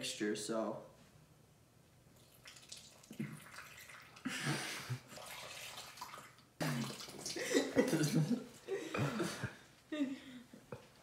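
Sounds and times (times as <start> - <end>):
milk pouring into bowl: 2.2 - 8.0.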